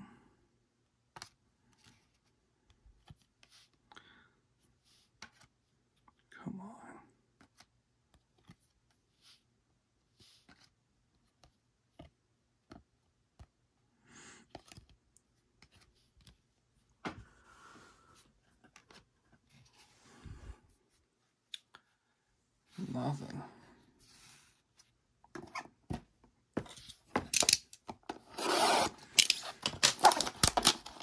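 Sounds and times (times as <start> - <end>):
cards clicking and swishing: 26.7 - 31.0.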